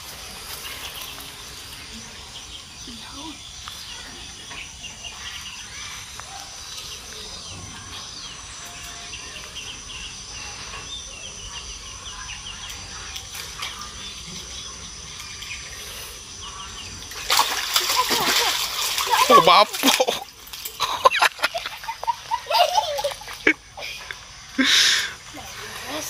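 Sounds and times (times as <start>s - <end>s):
birds chirping: 0.0s - 26.0s
insects droning: 0.0s - 26.0s
water splashing: 17.0s - 24.2s.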